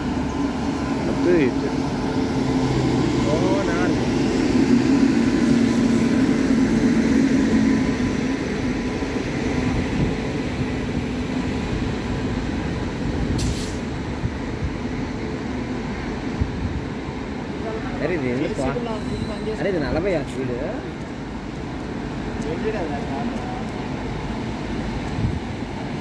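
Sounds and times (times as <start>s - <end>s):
electric locomotive hum: 0.0s - 18.8s
train wheels rumbling on rails: 0.0s - 26.0s
short hiss: 13.4s - 13.9s.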